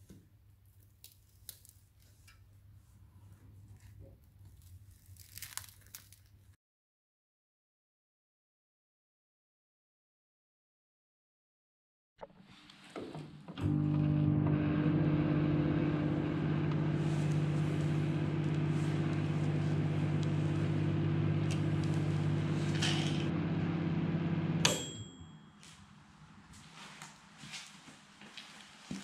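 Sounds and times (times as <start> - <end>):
microwave oven humming: 13.5 - 25.5
bell ding: 24.6 - 25.6.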